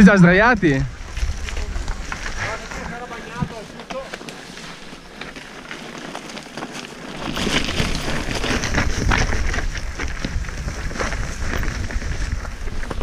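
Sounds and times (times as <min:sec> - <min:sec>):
wind rumbling on microphone: 0:00.0 - 0:03.7, 0:07.1 - 0:13.0
bike rattling and knocking: 0:00.4 - 0:13.0
tyres crunching over loose rock: 0:00.7 - 0:13.0.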